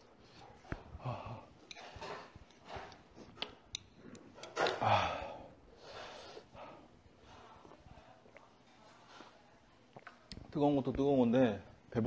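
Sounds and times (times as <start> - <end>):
breathy sighs: 4.7 - 6.8.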